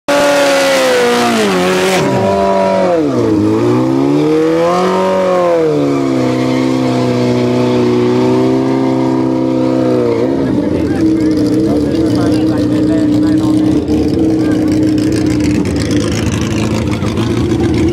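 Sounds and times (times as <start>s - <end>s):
motorcycle engine revving: 0.1s - 17.9s.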